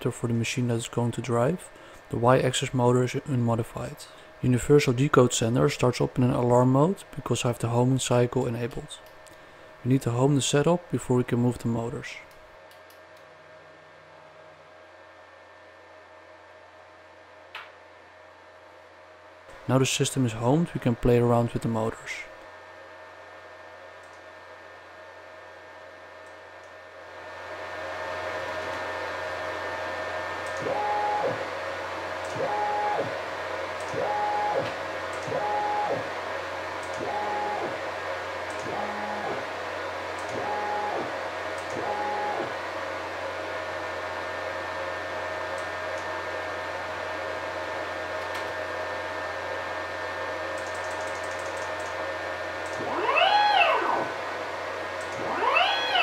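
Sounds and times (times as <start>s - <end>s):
steady whine underneath: 0.0s - 56.0s
stepper motor whine: 37.0s - 37.9s, 38.6s - 39.6s, 40.3s - 42.6s, 52.7s - 56.0s.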